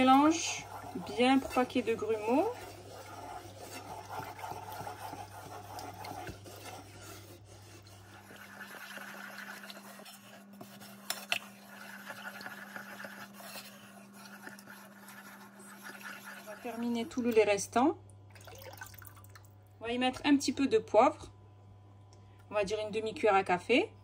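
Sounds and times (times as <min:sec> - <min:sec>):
wooden spoon scraping saucepan: 0:00.0 - 0:17.7.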